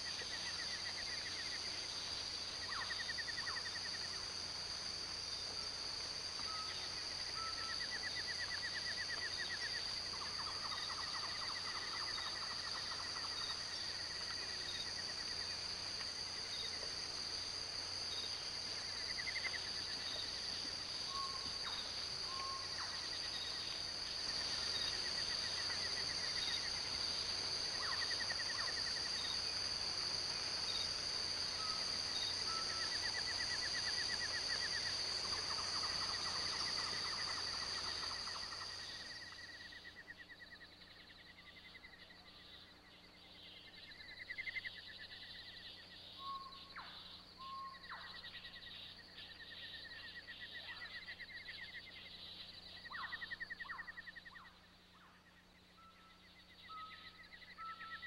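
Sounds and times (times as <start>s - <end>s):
high insect drone: 0.0s - 58.0s
animal trills and chirps: 43.6s - 58.0s.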